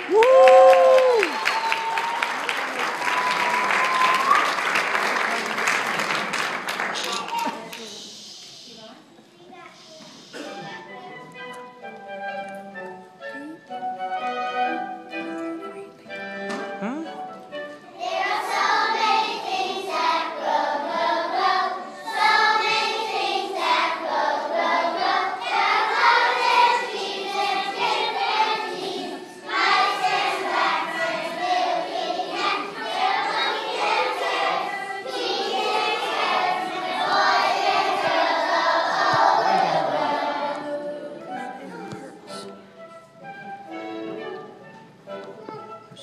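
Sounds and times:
musical accompaniment: 10.2 - 46.0
children singing in a choir: 17.9 - 41.7.

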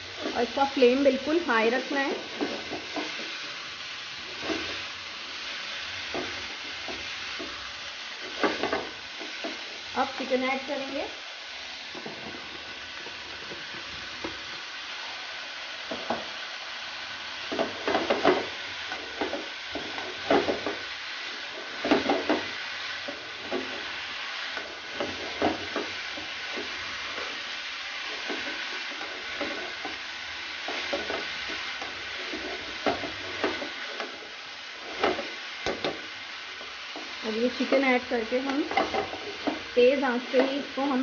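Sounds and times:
food sizzling in a pan: 0.0 - 41.0
spatula scraping a pan: 2.2 - 3.6, 4.2 - 9.9, 17.4 - 40.8.

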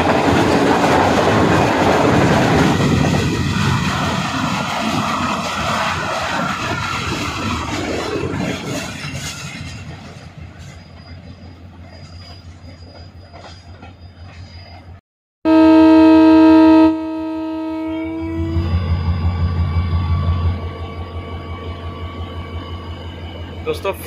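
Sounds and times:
train wheels clattering on rails: 0.0 - 14.9
locomotive horn chord: 15.4 - 18.7.

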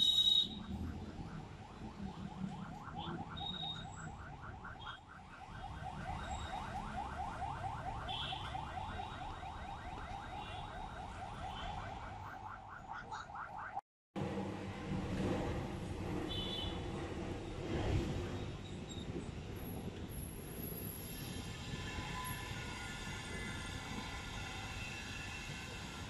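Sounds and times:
electronic alarm chirping: 0.0 - 1.5, 2.6 - 5.0.

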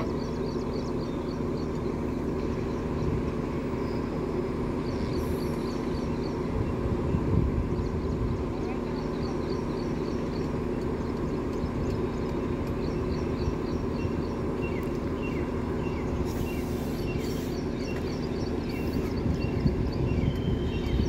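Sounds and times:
small birds chirping: 0.0 - 21.0
steady engine hum: 0.0 - 21.0.

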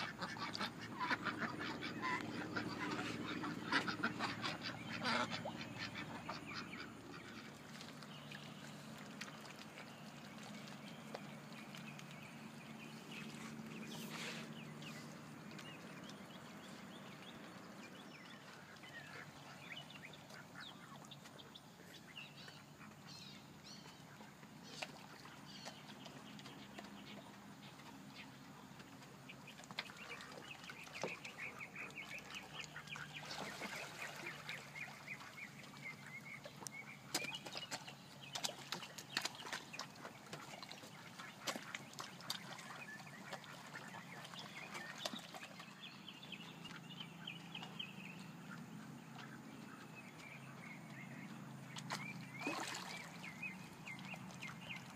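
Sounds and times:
ducks quacking: 0.0 - 7.8.

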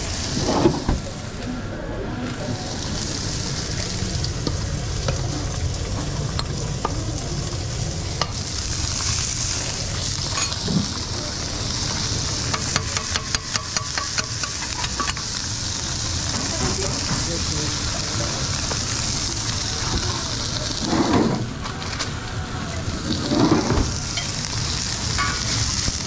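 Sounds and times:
food sizzling on griddle: 0.0 - 1.2, 2.2 - 26.0.

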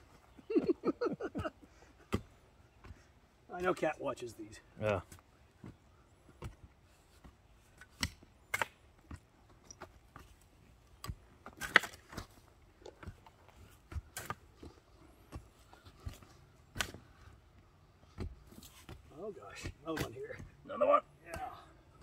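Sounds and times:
digging tools thudding and scraping: 5.0 - 17.4, 18.0 - 21.7.

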